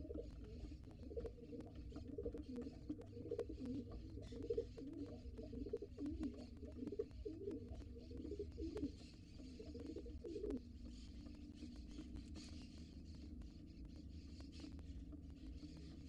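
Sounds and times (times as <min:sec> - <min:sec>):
pigeon cooing: 0:00.0 - 0:10.6.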